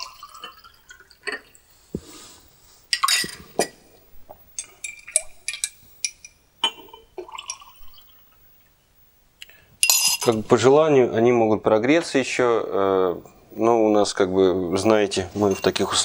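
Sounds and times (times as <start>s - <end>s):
coffee pouring into glass mugs: 0.0s - 2.3s, 2.9s - 8.7s
spoon clinking against glass: 9.8s - 10.4s.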